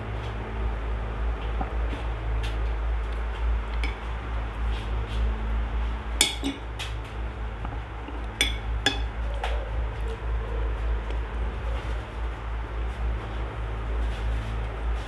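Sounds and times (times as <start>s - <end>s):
low background hum: 0.0s - 15.0s
metal spoon clinking on plate: 6.2s - 6.6s, 8.4s - 9.1s.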